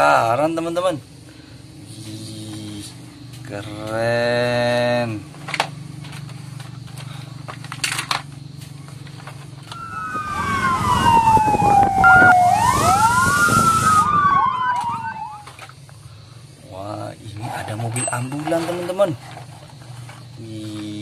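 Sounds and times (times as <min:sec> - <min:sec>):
street noise hiss: 0:00.0 - 0:21.0
plastic toy clicks and knocks: 0:05.4 - 0:08.3
fire engine siren wailing: 0:09.7 - 0:15.5.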